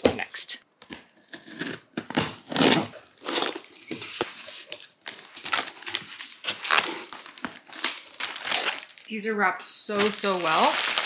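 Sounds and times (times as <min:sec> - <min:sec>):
plastic wrap tearing: 0:00.9 - 0:03.6, 0:04.4 - 0:09.1, 0:10.0 - 0:11.0
cardboard rustling: 0:02.5 - 0:09.1.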